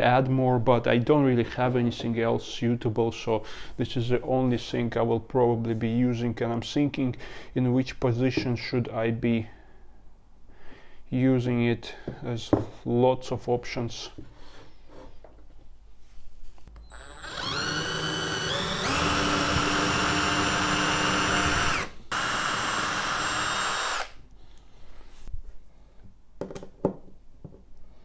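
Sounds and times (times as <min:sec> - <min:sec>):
cordless drill boring into wood: 0:16.8 - 0:24.2.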